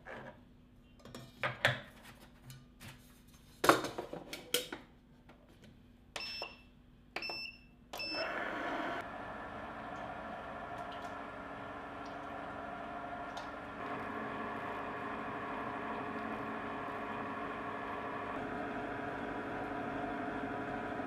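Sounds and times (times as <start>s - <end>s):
control panel beeps: 6.2s - 8.3s
ice cream maker running: 8.1s - 21.0s.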